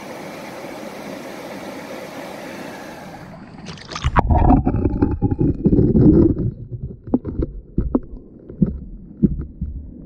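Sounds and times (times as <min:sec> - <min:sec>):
stream water running: 0:00.0 - 0:10.0
muffled underwater rumbling: 0:03.2 - 0:10.0
clicks and splashes: 0:03.6 - 0:09.6.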